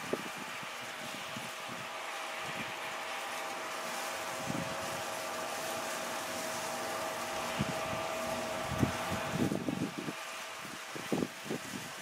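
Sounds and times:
wind buffeting microphone: 0:00.0 - 0:02.9, 0:04.2 - 0:05.5, 0:06.6 - 0:12.0
distant machinery droning: 0:00.0 - 0:11.8.

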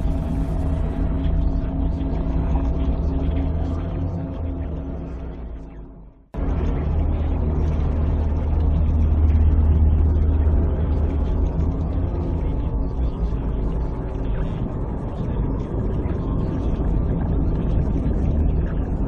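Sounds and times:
dense layered hum: 0:00.0 - 0:19.0
low engine-like rumbling drone: 0:00.0 - 0:19.0.

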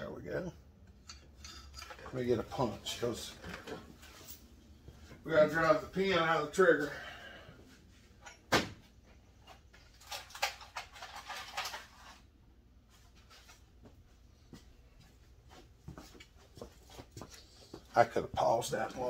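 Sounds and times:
tools clicking and clattering: 0:00.8 - 0:04.6, 0:08.2 - 0:08.5, 0:09.4 - 0:12.2.

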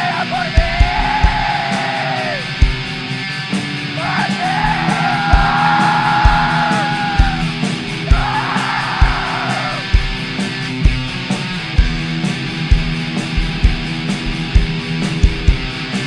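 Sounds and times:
slow kick drum beat: 0:00.0 - 0:01.7, 0:02.5 - 0:03.1, 0:04.4 - 0:16.0
harsh screamed vocal: 0:00.0 - 0:02.6, 0:03.9 - 0:10.0
distorted guitar chords: 0:00.0 - 0:16.0.

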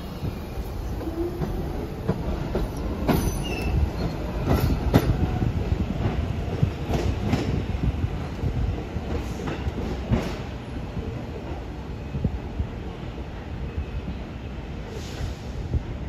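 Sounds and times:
subway train rumble: 0:00.0 - 0:16.0
wheel squeal: 0:03.1 - 0:04.8.

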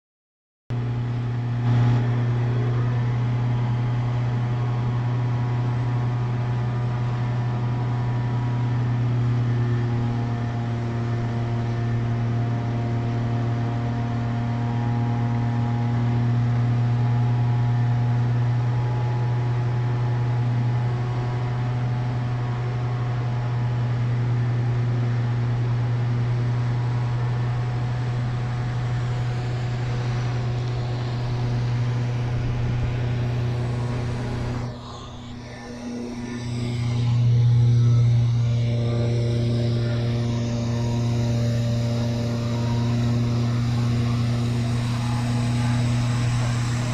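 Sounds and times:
street sweeper engine and fan hum: 0:00.8 - 0:46.9
steady high tones: 0:28.0 - 0:46.9.

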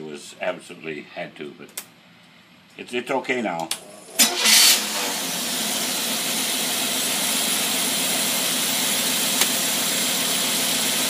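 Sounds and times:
engine idling: 0:04.4 - 0:11.0.

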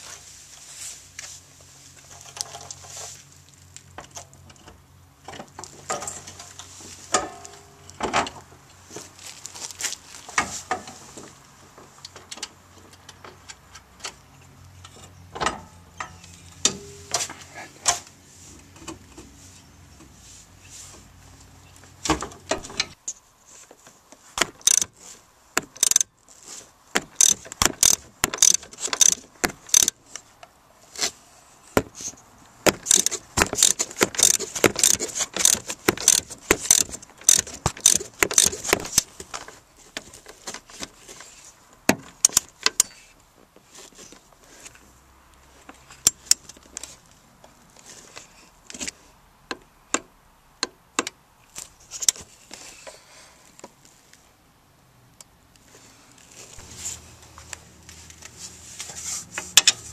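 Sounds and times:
hand tool and nuts clinking: 0:02.0 - 0:08.4, 0:12.0 - 0:19.3, 0:22.1 - 0:23.2, 0:24.4 - 0:30.3, 0:31.8 - 0:41.4, 0:56.5 - 0:59.9.

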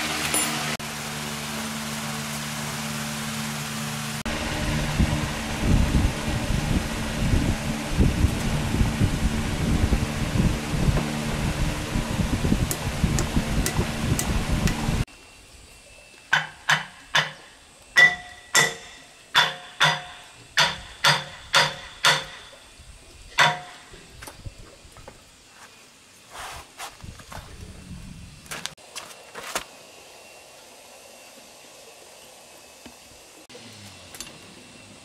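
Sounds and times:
hammer blows on metal: 0:16.3 - 0:22.6, 0:23.3 - 0:24.0.

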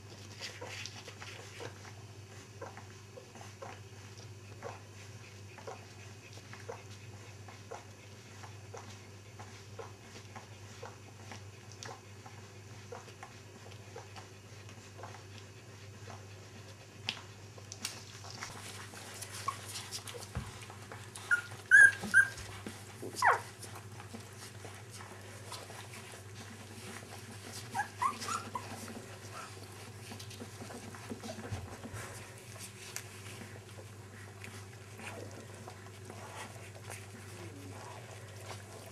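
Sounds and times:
dogs whimpering: 0:18.6 - 0:38.9.

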